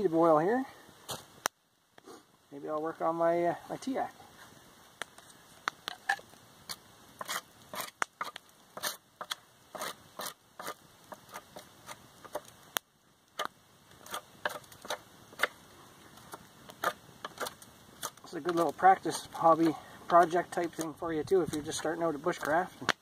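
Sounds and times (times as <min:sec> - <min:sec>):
knife scraping bark: 0:05.9 - 0:12.5, 0:13.4 - 0:15.6, 0:16.3 - 0:18.2.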